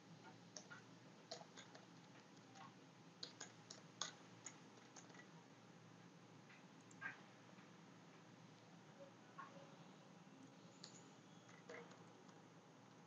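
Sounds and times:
computer keyboard typing: 0.6 - 5.3.

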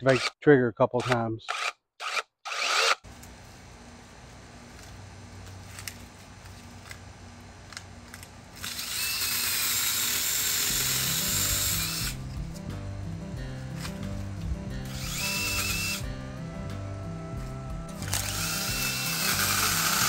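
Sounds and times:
mini chainsaw cutting a branch: 1.1 - 3.0, 8.6 - 12.2, 14.9 - 16.1, 18.0 - 20.0
background music with steady beat: 10.5 - 20.0.

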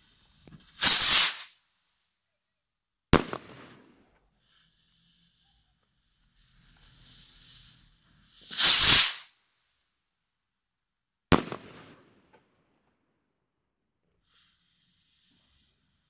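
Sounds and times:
rocket launching whoosh: 0.7 - 1.5, 8.5 - 9.3
firework bang echoing: 3.2 - 3.9, 11.3 - 12.2
fuse hissing: 14.2 - 16.0.

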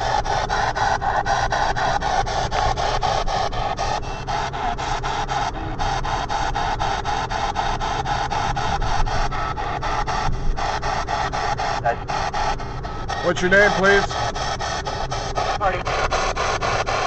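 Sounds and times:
choppy radio static bursts: 9.8 - 17.0.

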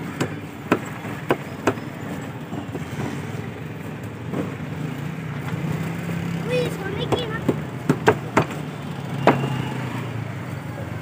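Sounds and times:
cleaver chopping on wooden block: 0.2 - 1.8, 7.1 - 8.6, 9.2 - 9.5.

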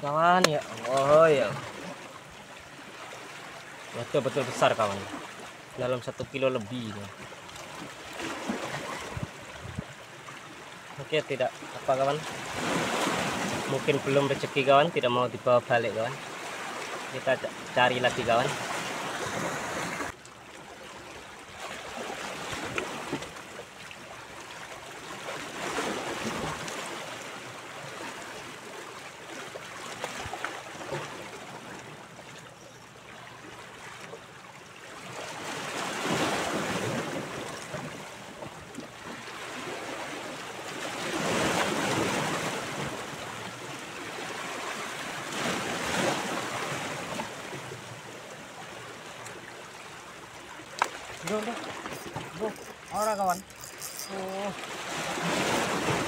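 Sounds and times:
waves washing against rocks: 50.8 - 56.0.

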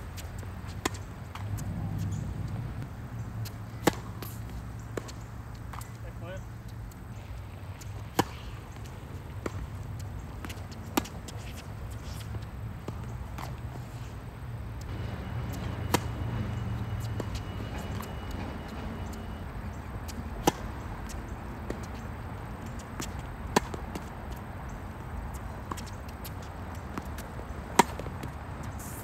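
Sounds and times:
tennis ball hit by racket: 3.7 - 5.9, 7.9 - 9.7, 10.4 - 13.6, 15.4 - 18.1, 20.1 - 22.1, 22.8 - 24.1, 25.6 - 28.4.

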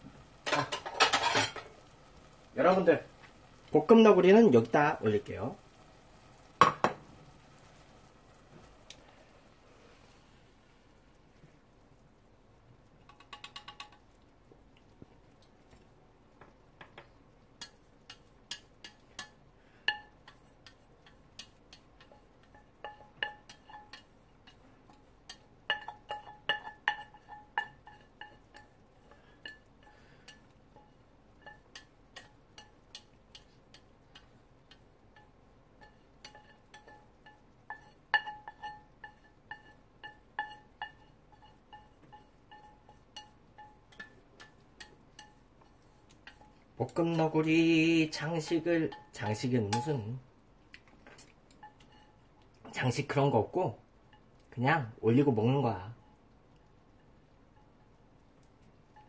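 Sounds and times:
utensil scraping metal pot: 0.4 - 1.8, 17.6 - 50.1.

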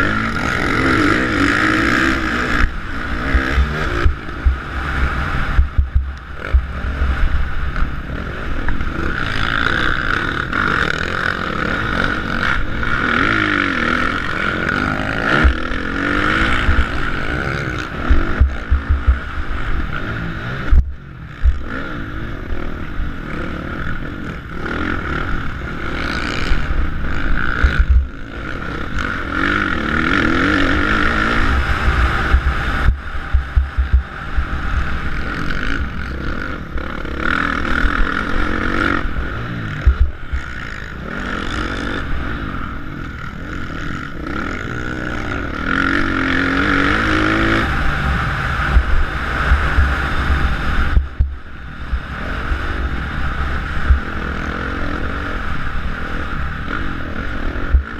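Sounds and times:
dirt bike engine revving: 0.0 - 57.9
bike knocking on bumps: 5.5 - 6.7, 18.4 - 19.2, 32.3 - 34.1, 39.8 - 40.1.

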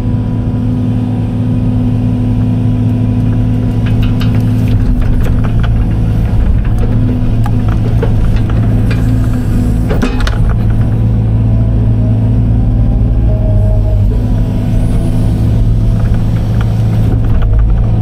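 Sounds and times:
excavator diesel engine running: 0.0 - 18.0
high whine of swinging bucket: 3.3 - 18.0
sharp knocks: 3.7 - 11.2.

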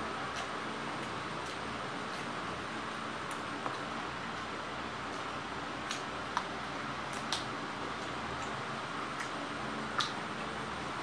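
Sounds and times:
mouth chewing smacks and clicks: 5.1 - 6.5, 9.2 - 10.6.

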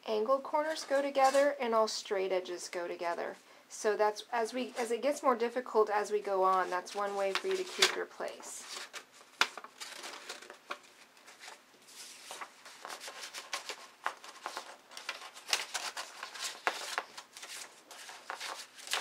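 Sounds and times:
stiff paper rustling and crinkling: 6.5 - 19.0.

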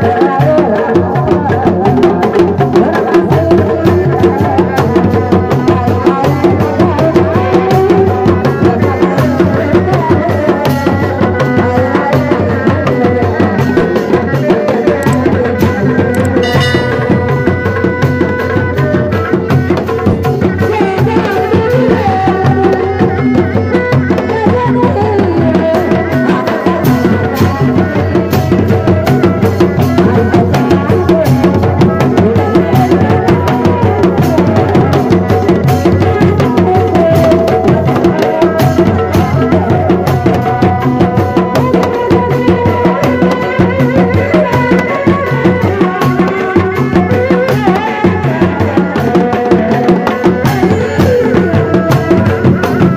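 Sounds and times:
hand drums beating: 0.0 - 52.9
bass drum: 13.8 - 21.0
wavering melody: 14.5 - 19.8.

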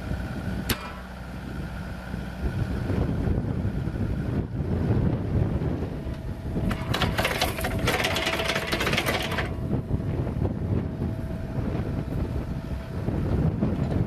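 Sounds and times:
mini excavator running: 0.0 - 14.0
wind on microphone: 1.6 - 14.0
auger flinging soil rattle: 6.1 - 10.4.

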